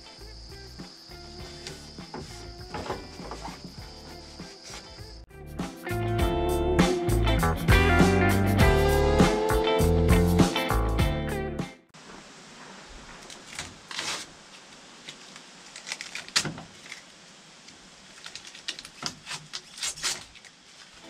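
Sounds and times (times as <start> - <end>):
paper and plastic rustling: 13.1 - 17.1, 18.1 - 21.0.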